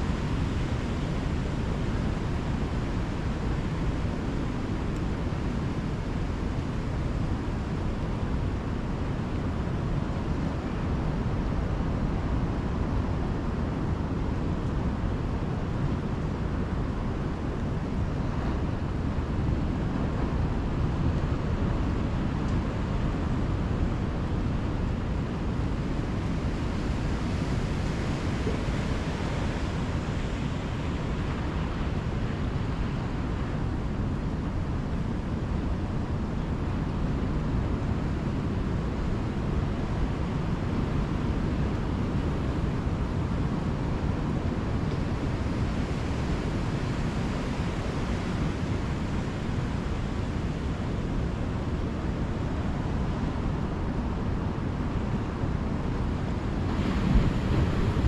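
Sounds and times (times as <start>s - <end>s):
wind rumbling on microphone: 0.0s - 58.0s
ocean surf breaking: 55.9s - 58.0s.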